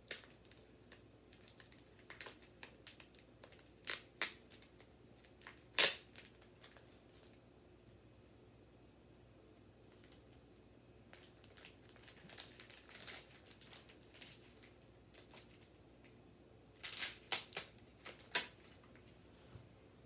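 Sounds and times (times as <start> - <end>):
plastic packaging crinkling: 0.0 - 7.4, 11.1 - 15.8, 16.8 - 19.1.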